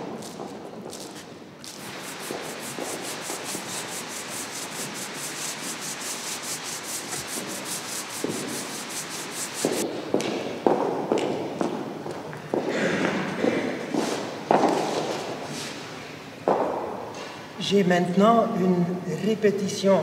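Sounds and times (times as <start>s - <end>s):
push broom scrubbing wet floor: 0.0s - 9.8s.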